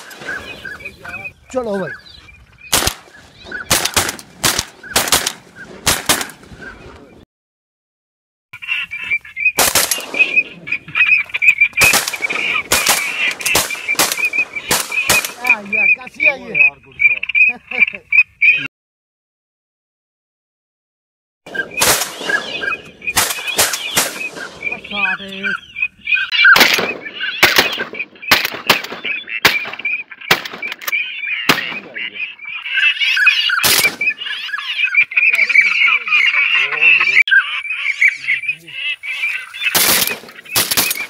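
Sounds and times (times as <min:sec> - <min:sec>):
flock of waterfowl calling: 0:00.0 - 0:07.2, 0:08.6 - 0:18.7, 0:21.5 - 0:41.0
shotgun shots: 0:02.7 - 0:06.5, 0:09.6 - 0:10.5, 0:11.8 - 0:15.5, 0:21.5 - 0:24.8, 0:26.5 - 0:30.9, 0:31.5 - 0:32.0, 0:33.6 - 0:34.1, 0:39.7 - 0:41.0.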